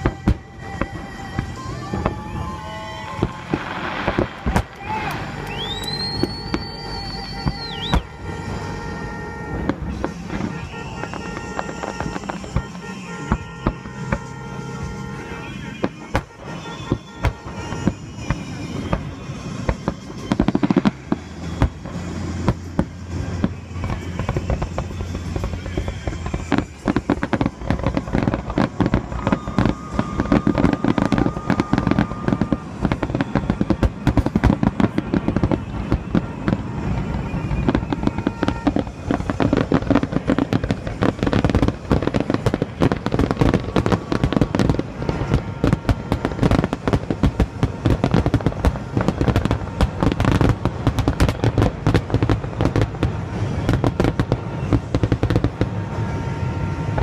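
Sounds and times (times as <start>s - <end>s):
fireworks bursting and crackling: 0.0s - 57.0s.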